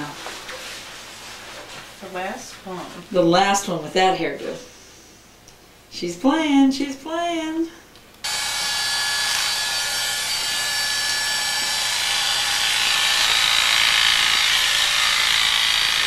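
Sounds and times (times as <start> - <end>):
electric hair clippers buzzing: 8.2 - 16.0.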